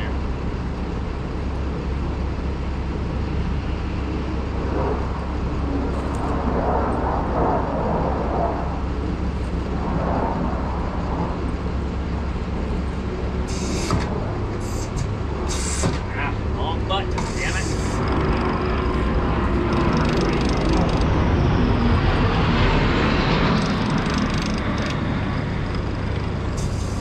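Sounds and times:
low mechanical hum: 0.0 - 27.0
handling and work noise: 13.4 - 16.2, 17.0 - 21.2, 23.5 - 27.0.

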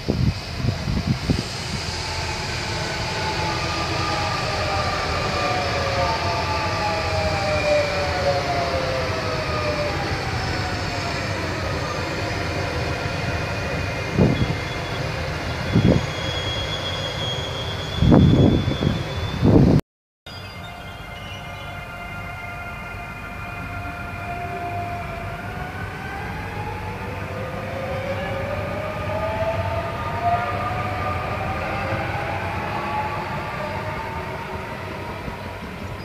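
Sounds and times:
wheels rumbling on track: 0.0 - 19.8, 20.4 - 36.0
high thin squeal: 0.1 - 5.8, 10.2 - 22.6
traction motors whining: 0.1 - 19.6.

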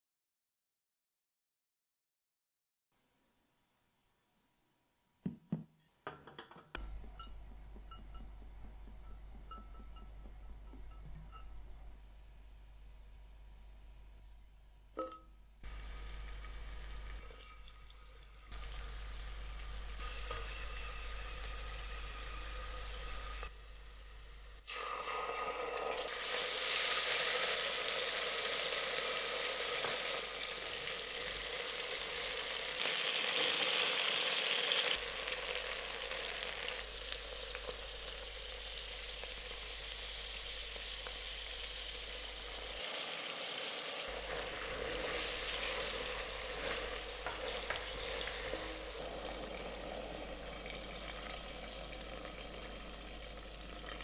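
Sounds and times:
hot oil sizzling: 15.6 - 54.0.

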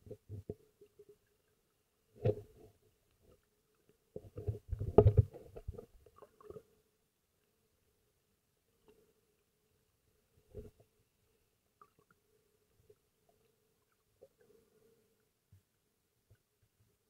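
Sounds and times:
underwater gurgles: 4.1 - 6.8
muffled underwater knocks: 4.4 - 5.8.

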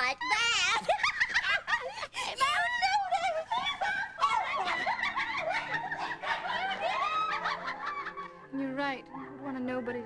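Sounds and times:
women laughing mockingly: 0.7 - 8.5.

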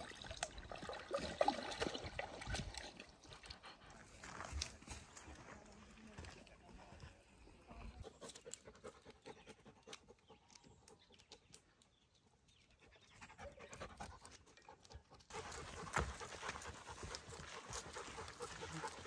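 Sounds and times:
dog panting: 8.0 - 11.2, 12.7 - 19.0.

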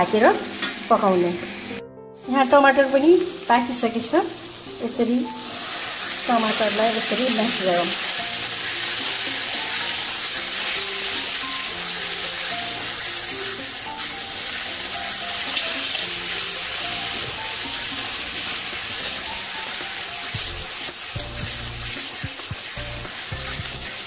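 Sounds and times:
masala sizzling in a pan: 0.0 - 24.0
soft background music: 0.0 - 24.0
metal spoon stirring: 17.2 - 24.0.

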